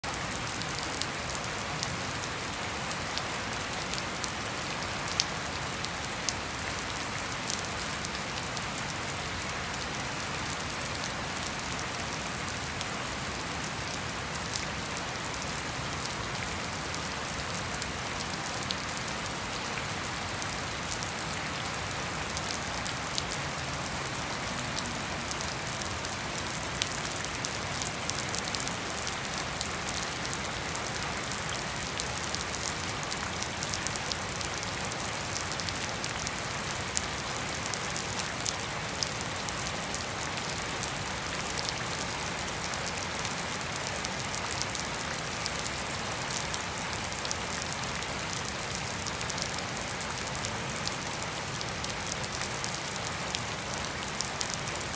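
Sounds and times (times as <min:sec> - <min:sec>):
rain on trees and lawn: 0:00.0 - 0:54.9.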